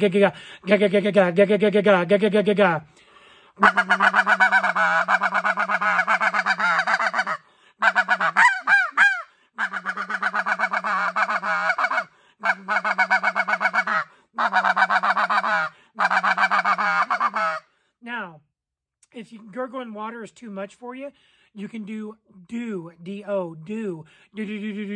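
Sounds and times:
goose call rattling notes: 3.6 - 17.6
short goose calls: 3.6 - 17.7.

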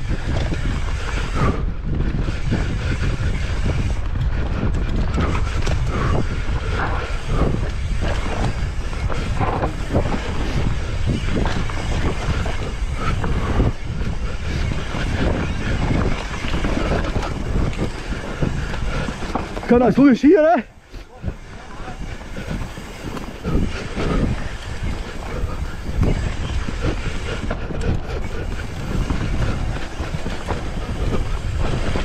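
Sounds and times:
bike knocks and rattles: 0.0 - 19.8
wind rush on microphone: 0.0 - 32.0.

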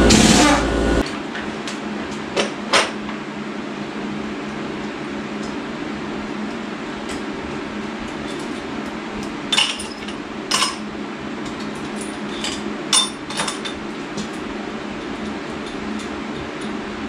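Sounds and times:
steady mechanical hum: 0.0 - 17.0
metal parts clinking: 9.5 - 10.8.

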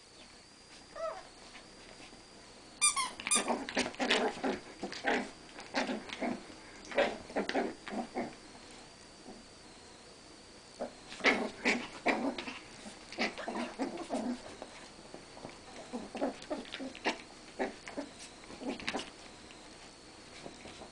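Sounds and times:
dogs growling and snarling: 3.3 - 8.4, 10.8 - 14.7, 15.4 - 19.1.

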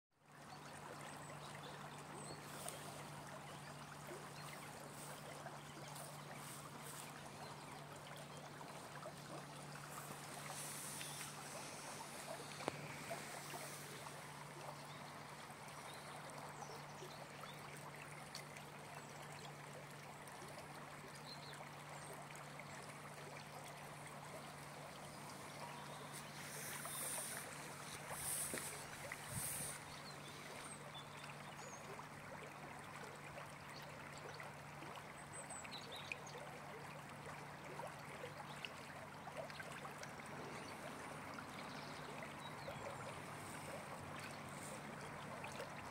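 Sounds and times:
stream water rushing: 1.5 - 16.6, 22.9 - 31.4, 39.4 - 45.9.

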